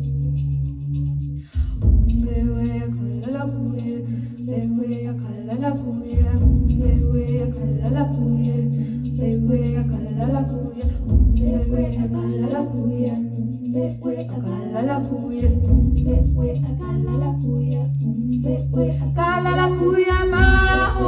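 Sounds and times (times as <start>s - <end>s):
deep low swells: 0.0s - 21.0s
looped vocal drone: 0.0s - 21.0s
woman singing wordless chant: 2.2s - 21.0s.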